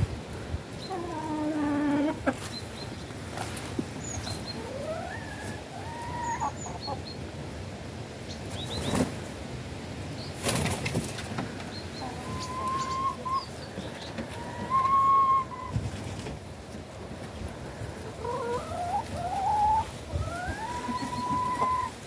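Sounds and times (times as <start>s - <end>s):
chickens calling: 0.0s - 7.6s, 8.2s - 9.4s, 10.2s - 22.0s
wing flapping: 10.4s - 11.4s.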